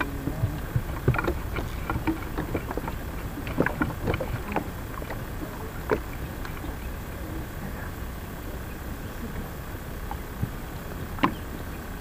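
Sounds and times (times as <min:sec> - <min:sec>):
knocks and clatter on boat: 0:00.0 - 0:12.0
low rumble of wind: 0:00.0 - 0:12.0
water lapping: 0:00.0 - 0:12.0.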